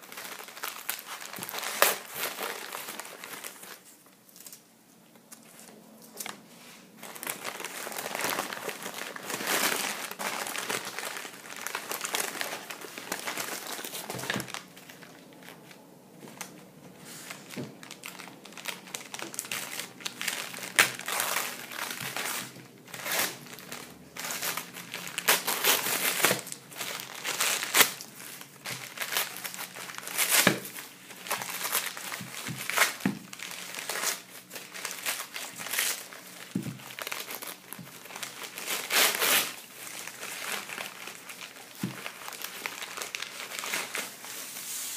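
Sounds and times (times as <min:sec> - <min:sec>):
paper crinkling and rustling: 0:00.0 - 0:44.9.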